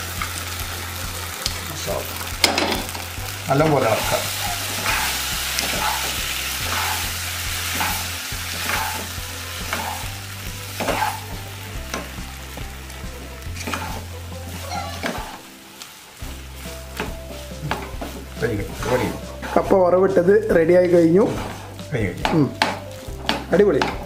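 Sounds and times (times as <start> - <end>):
coconut oil sizzling in a pot: 0.0 - 24.0
wooden spatula scraping a pot: 3.9 - 11.4, 13.6 - 15.4, 16.9 - 24.0.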